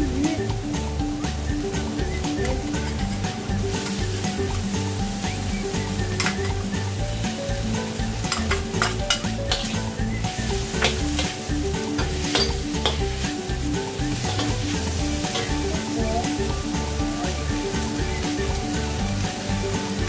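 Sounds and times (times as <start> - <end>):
food sizzling in a wok: 0.0 - 20.0
metal spatula scraping a pan: 8.2 - 16.5.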